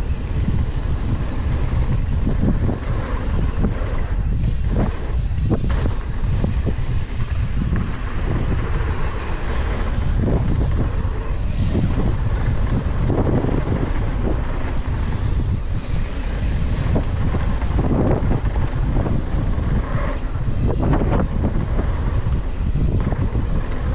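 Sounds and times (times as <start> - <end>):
bike knocking and rattling: 0.0 - 23.9
tyres rolling over dirt: 0.0 - 23.9
wind buffeting microphone: 0.0 - 23.9.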